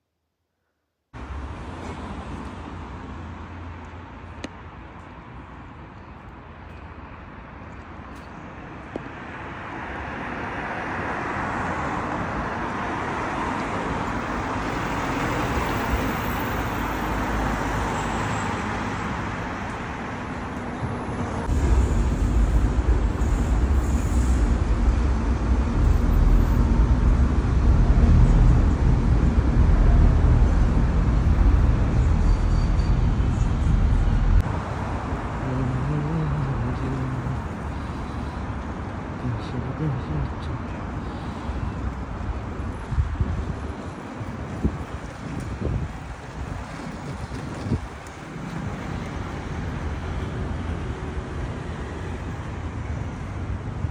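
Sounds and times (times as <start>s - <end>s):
street traffic: 1.2s - 53.9s
heavy deep rumble: 21.4s - 34.4s.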